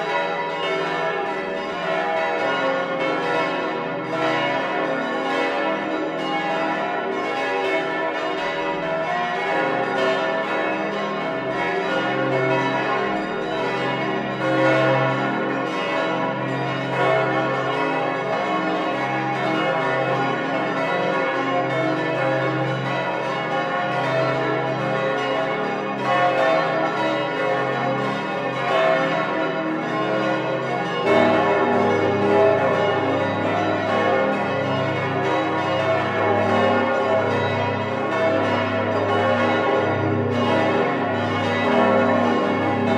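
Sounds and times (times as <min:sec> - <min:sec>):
church bells ringing in a peal: 0:00.0 - 0:42.9
deep bell tone: 0:42.0 - 0:42.9.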